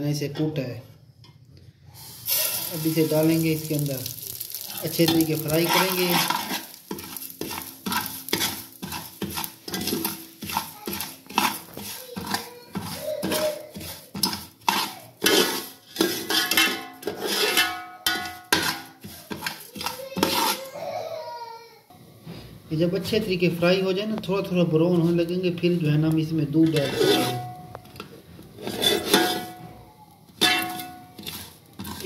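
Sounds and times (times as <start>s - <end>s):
spoon scraping a metal pot: 2.3s - 20.7s, 26.5s - 32.0s.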